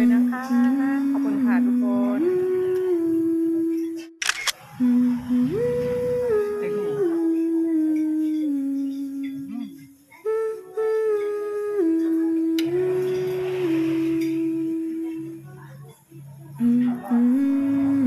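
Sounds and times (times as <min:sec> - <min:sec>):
slow melody of held notes: 0:00.0 - 0:04.2, 0:04.8 - 0:18.0.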